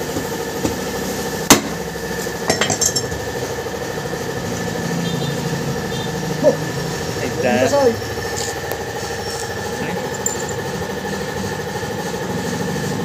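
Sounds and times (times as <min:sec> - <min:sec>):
steady background hum: 0:00.0 - 0:13.0
hammer striking metal wheel rim: 0:01.5 - 0:01.8.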